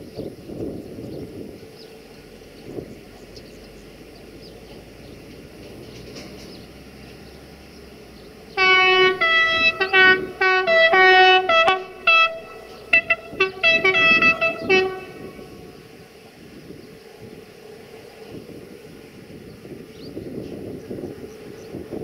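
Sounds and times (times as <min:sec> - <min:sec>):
locomotive horn: 0:08.5 - 0:16.2.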